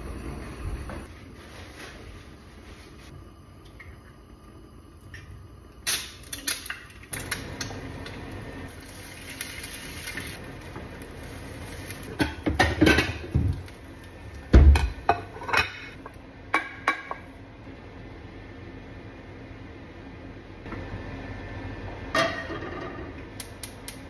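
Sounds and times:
eggs sizzling: 0:03.5 - 0:17.4.

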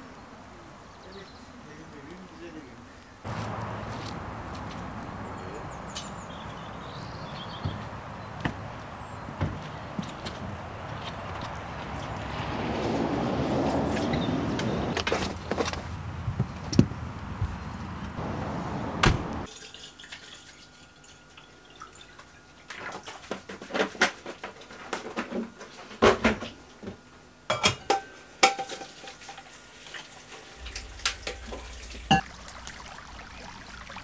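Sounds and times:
dishes and glassware clinking: 0:27.5 - 0:29.4
steady rushing noise: 0:30.4 - 0:33.6.

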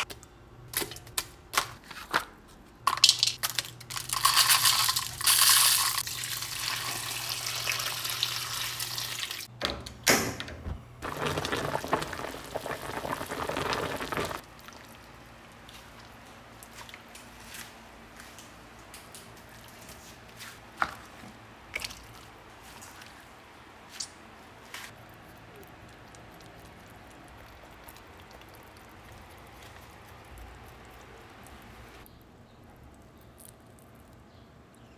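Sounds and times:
water pouring into a wok: 0:05.3 - 0:09.5, 0:11.0 - 0:14.4.

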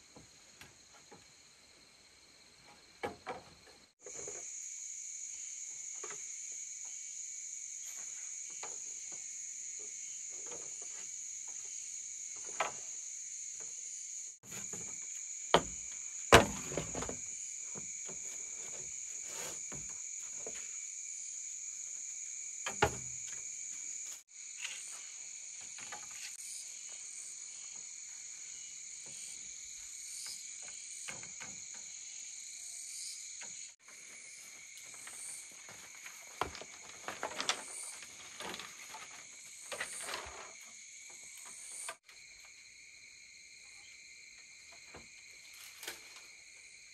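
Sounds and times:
insects chirping: 0:00.0 - 0:46.9
sharp knocks: 0:15.5 - 0:17.2.

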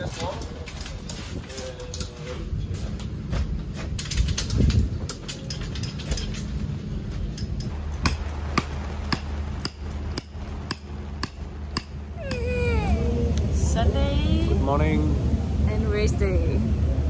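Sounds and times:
hammer striking tent peg: 0:08.0 - 0:12.5.

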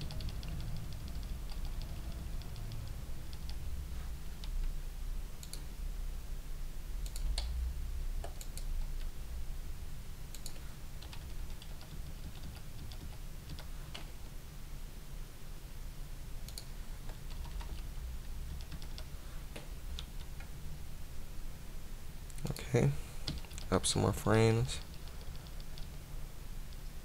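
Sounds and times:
keyboard keys clicking: 0:00.0 - 0:03.6, 0:10.3 - 0:14.1, 0:18.5 - 0:20.5
steady low hum: 0:00.0 - 0:27.0.

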